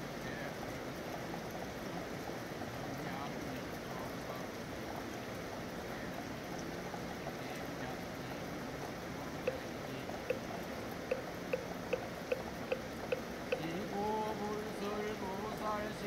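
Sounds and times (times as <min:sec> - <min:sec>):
steady rain: 0:00.0 - 0:16.0
wooden fish knocking: 0:11.1 - 0:13.7.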